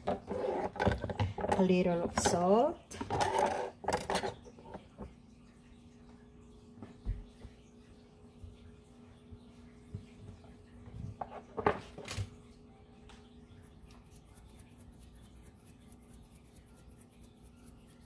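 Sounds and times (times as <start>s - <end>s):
kitchen items clicking and knocking: 0.0s - 4.8s.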